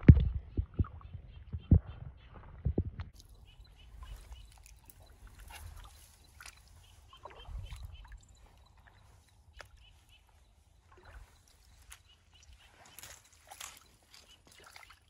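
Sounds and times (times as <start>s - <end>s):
feet splashing in shallow water: 3.2s - 15.0s.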